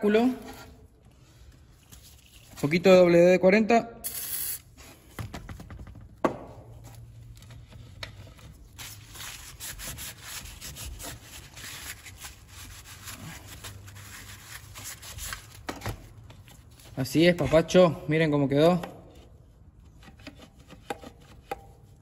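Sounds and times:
paper towel wiping plastic and metal: 6.8s - 17.8s.

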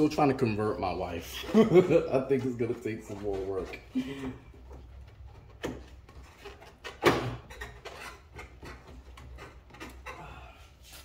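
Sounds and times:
plastic and metal knocks and clunks: 1.4s - 10.2s.

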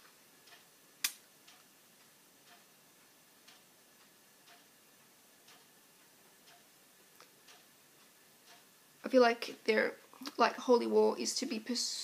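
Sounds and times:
clock ticking: 0.0s - 10.6s
sharp click: 1.0s - 1.2s.

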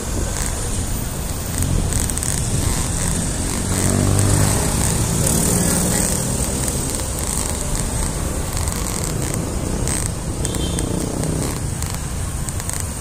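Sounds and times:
wind and road noise rumble: 0.0s - 13.0s.

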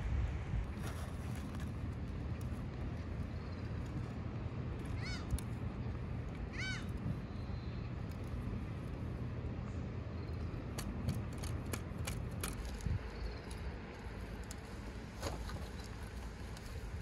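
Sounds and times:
low rumble of surf or wind: 0.0s - 10.4s.

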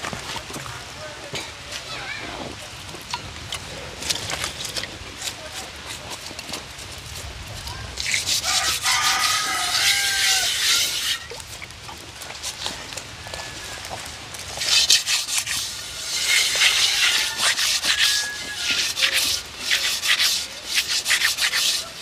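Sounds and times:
harsh rasping scrape: 3.6s - 11.4s, 14.5s - 22.0s.

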